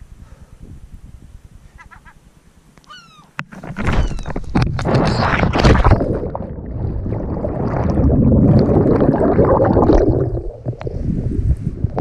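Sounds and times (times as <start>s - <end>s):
underwater bubbling and rushing: 4.5s - 12.0s
water splashing: 4.8s - 11.1s.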